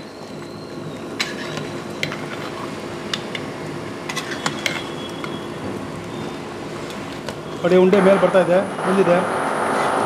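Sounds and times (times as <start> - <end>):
steady hum: 5.5 - 10.0.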